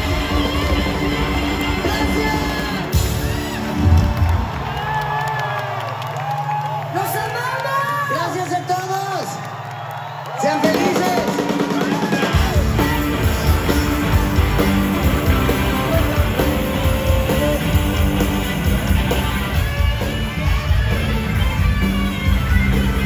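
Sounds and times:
live rock band playing: 0:00.0 - 0:04.8, 0:10.6 - 0:23.0.

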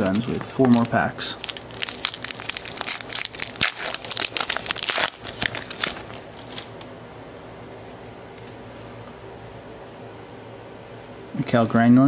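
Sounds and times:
plastic wrapper tearing and crinkling: 0:00.0 - 0:06.9
faint room hum: 0:00.0 - 0:12.0.

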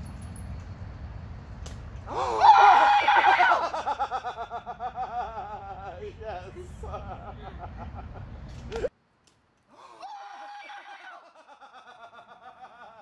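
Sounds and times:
people laughing and giggling: 0:03.4 - 0:08.9, 0:11.2 - 0:13.0.

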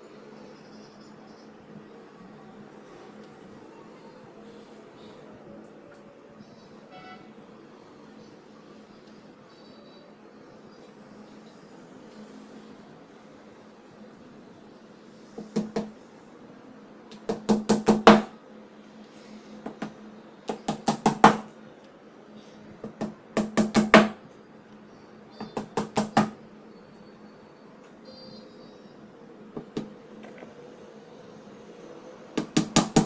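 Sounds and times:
hammer tapping nails: 0:17.1 - 0:18.3, 0:19.7 - 0:21.5, 0:22.8 - 0:24.2, 0:25.4 - 0:26.4, 0:32.4 - 0:33.0.

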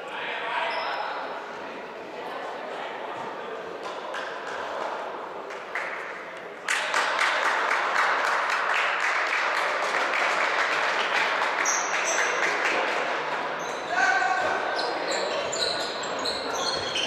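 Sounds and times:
spectators clapping: 0:03.8 - 0:13.6.

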